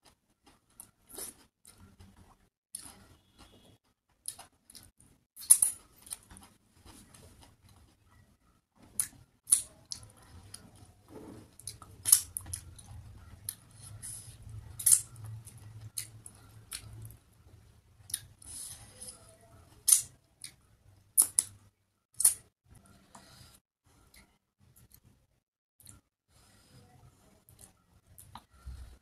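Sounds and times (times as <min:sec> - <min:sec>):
wet chewing and lip smacks: 0:14.8 - 0:17.2.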